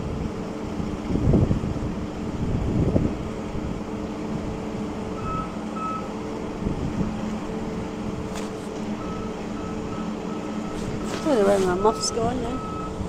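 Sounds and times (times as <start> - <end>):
diesel engine running: 0.0 - 13.0
reversing warning beeper: 5.1 - 6.2, 8.9 - 13.0.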